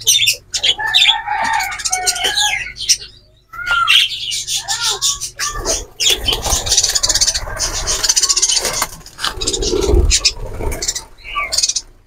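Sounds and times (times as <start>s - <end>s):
wire mesh rattling and scraping: 5.5s - 11.2s.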